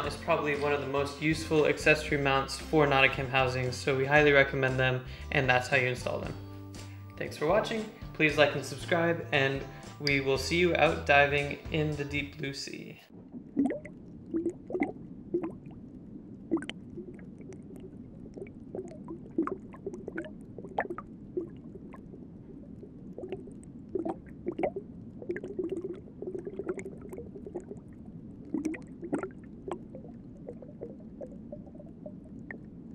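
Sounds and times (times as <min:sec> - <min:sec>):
underwater bubbling and gurgling: 0:13.1 - 0:32.9.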